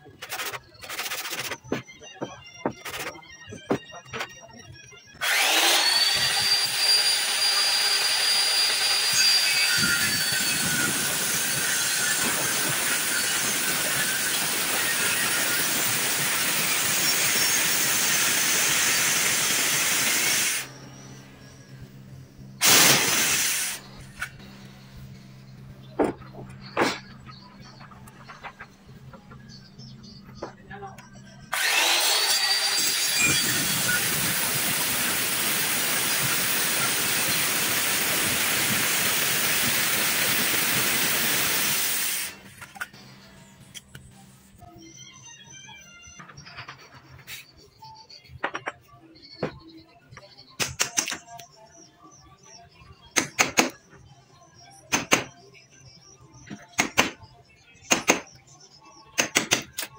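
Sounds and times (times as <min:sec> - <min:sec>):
circular saw cutting wood: 0:05.2 - 0:21.5, 0:22.6 - 0:24.4, 0:31.5 - 0:42.6
hammer striking steel chisel: 0:59.2 - 0:59.9.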